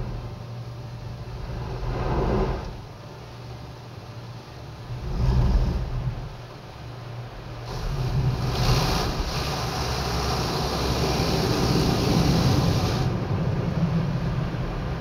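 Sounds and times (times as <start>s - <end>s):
low hum: 0.0s - 15.0s
water spray rushing: 7.7s - 13.2s.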